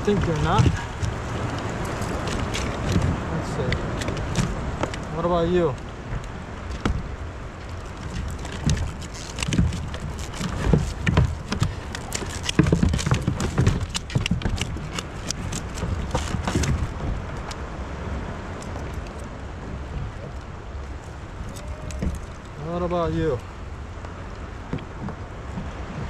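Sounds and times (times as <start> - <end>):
knocks and clatter of lobsters: 0.0 - 17.6, 21.4 - 22.6
steady low rumble: 0.0 - 26.0.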